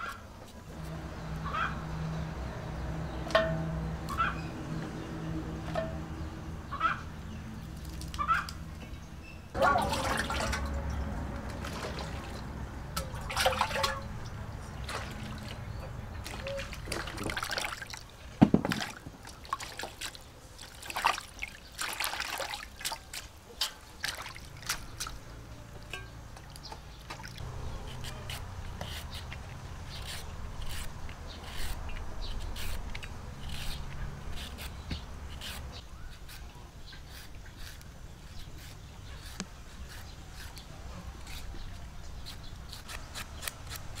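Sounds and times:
water pouring and splashing: 9.6 - 25.2, 25.9 - 27.4
metal bowls clinking: 13.0 - 14.2
peeler scraping carrot: 27.7 - 44.0.

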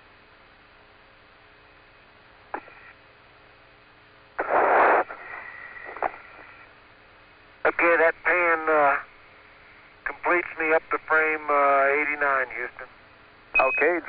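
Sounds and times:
faint steady tones: 0.0 - 14.0
radio channel clicks: 2.5 - 2.8
radio hiss: 2.5 - 3.0, 4.3 - 6.8, 7.6 - 14.0
burst of static: 4.4 - 6.7, 7.7 - 9.1.

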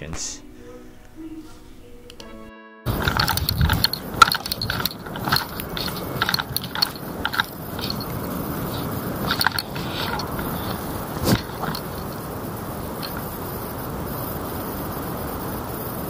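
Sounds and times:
rustling rumbling background: 2.9 - 15.0.

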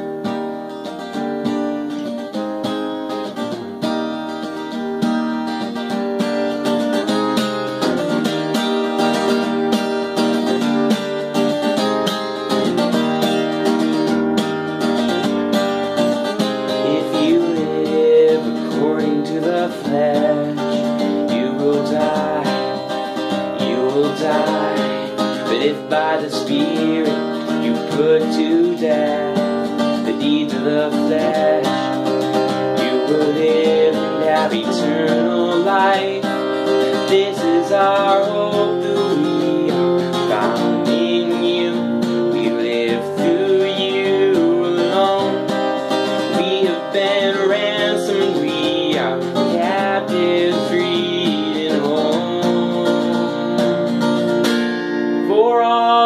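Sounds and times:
acoustic guitar strumming: 0.0 - 56.0
person singing: 16.1 - 54.4, 55.2 - 56.0.

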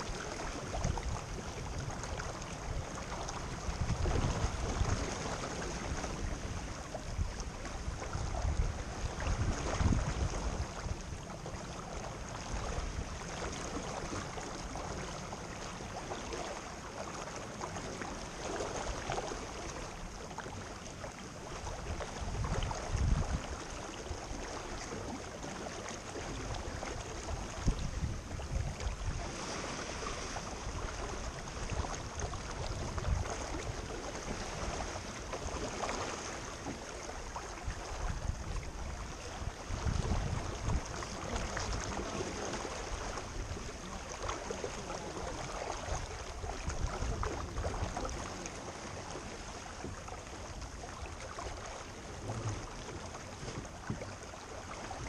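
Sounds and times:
wind buffeting microphone: 0.0 - 11.3, 21.5 - 25.2, 26.3 - 51.2
water rushing along boat hull: 0.0 - 55.0.

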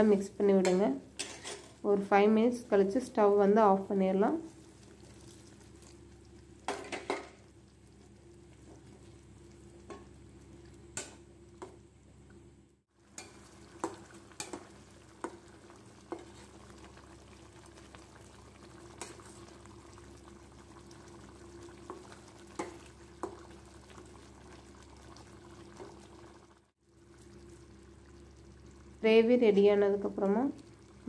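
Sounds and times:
spatula scraping a metal pot: 1.2 - 1.8
gravy simmering hiss: 2.5 - 31.0.

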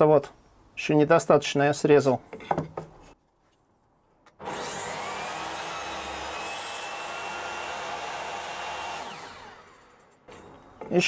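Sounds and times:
table saw running: 4.4 - 10.2.

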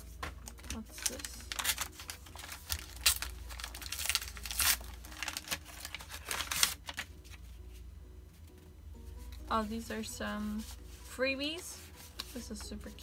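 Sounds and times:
paper bag crinkling: 0.4 - 7.4.

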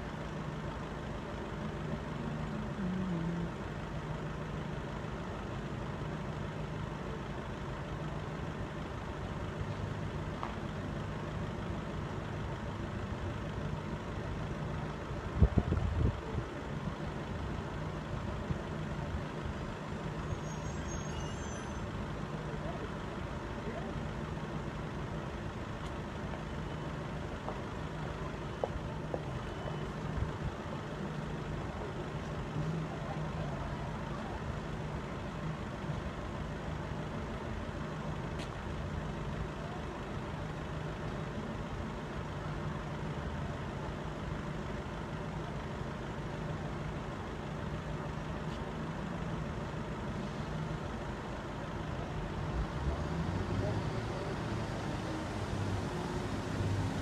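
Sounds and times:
traffic rumble: 0.0 - 57.0
vehicle engine idling: 0.0 - 57.0.

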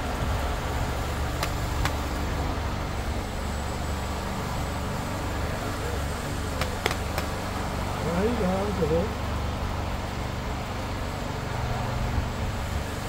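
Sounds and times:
paintball markers popping: 1.4 - 2.1, 6.6 - 7.4.

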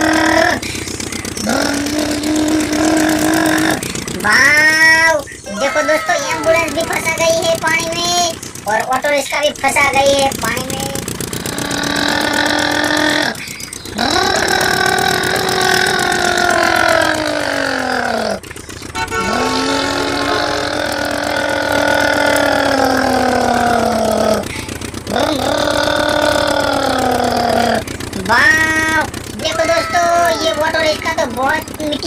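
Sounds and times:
toy flywheel motor whining: 11.4 - 32.0.

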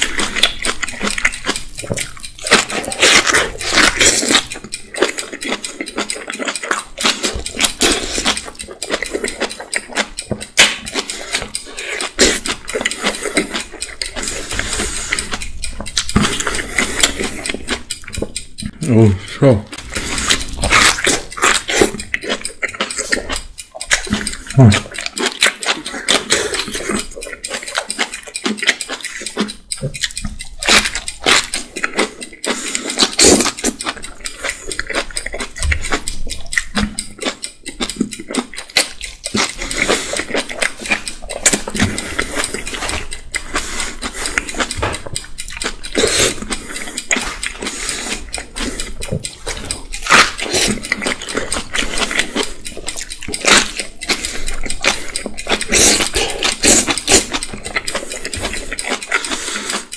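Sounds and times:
crunching and chewing kimchi: 0.0 - 59.9.

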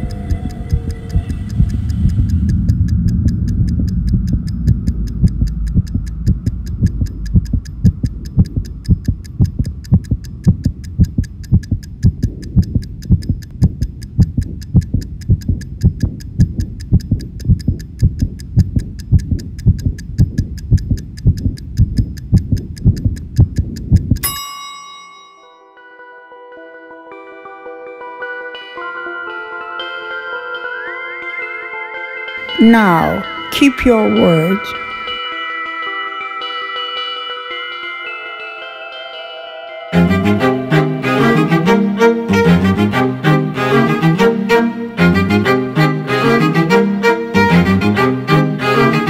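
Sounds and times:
low thumps: 0.0 - 24.2
low hum: 0.0 - 24.3, 39.9 - 49.0
oven timer ticking: 0.0 - 24.8, 32.6 - 34.7.

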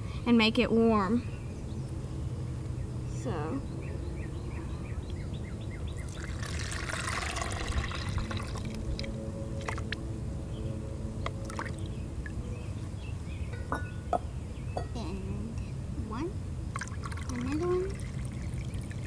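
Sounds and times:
water pouring into tub: 6.1 - 10.0, 16.8 - 19.0.

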